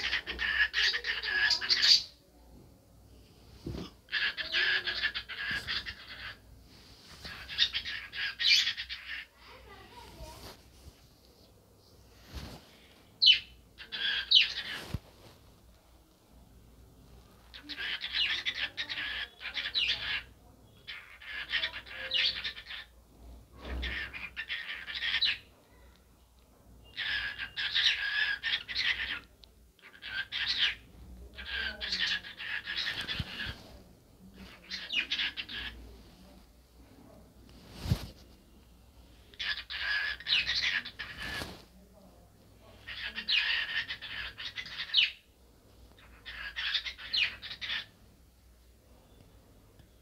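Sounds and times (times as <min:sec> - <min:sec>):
cockatiel chattering and warbling: 0:00.0 - 0:02.1, 0:04.1 - 0:06.4, 0:07.2 - 0:09.6, 0:13.2 - 0:15.0, 0:17.5 - 0:22.9, 0:23.6 - 0:25.5, 0:26.8 - 0:33.6, 0:34.4 - 0:35.8, 0:39.3 - 0:41.5, 0:42.8 - 0:45.2, 0:46.0 - 0:47.9
cockatiel chirping: 0:26.8 - 0:29.2, 0:42.9 - 0:45.2, 0:46.0 - 0:47.9.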